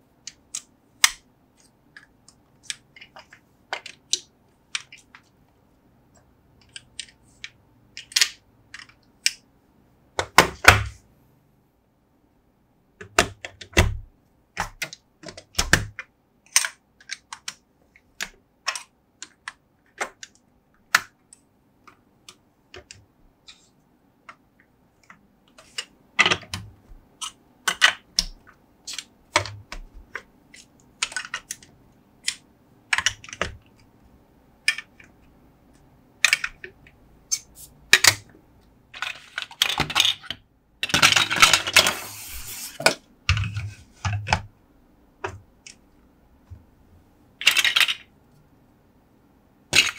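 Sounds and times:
plastic blocks clicking: 0.2s - 5.3s, 6.1s - 9.4s, 14.6s - 17.6s, 18.2s - 23.7s, 25.0s - 33.8s, 34.6s - 35.2s, 36.2s - 38.3s, 38.9s - 42.0s, 47.4s - 48.1s
loose plastic blocks clattering: 25.0s - 33.8s, 38.9s - 44.5s, 47.4s - 48.1s.

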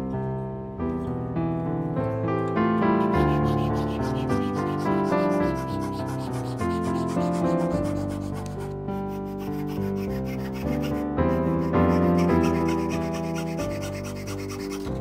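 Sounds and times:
instrumental music: 0.0s - 15.0s
fret saw cutting wood: 3.0s - 15.0s.

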